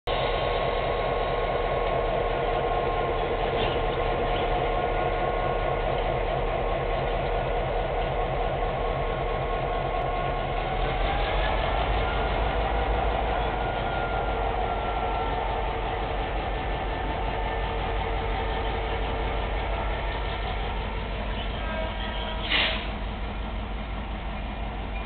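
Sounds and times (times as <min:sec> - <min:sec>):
diesel locomotive engine running: 0:00.0 - 0:25.0.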